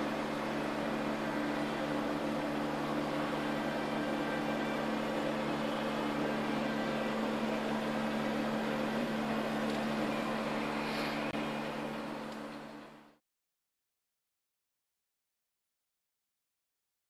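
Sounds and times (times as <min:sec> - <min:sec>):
machine hum: 0:00.0 - 0:13.2.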